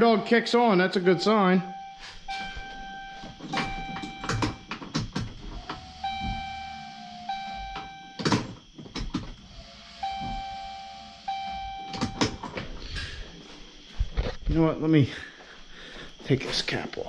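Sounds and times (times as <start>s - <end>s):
dashboard warning chime: 0.0s - 4.8s, 5.8s - 8.2s, 10.0s - 12.4s
sharp knocks and clicks: 2.6s - 6.5s, 7.6s - 9.4s, 11.8s - 12.7s.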